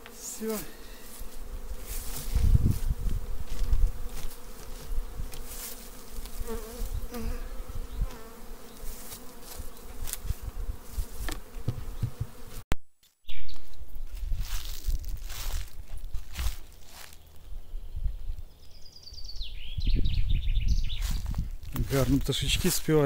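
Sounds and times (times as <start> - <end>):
bees buzzing: 0.0 - 12.6.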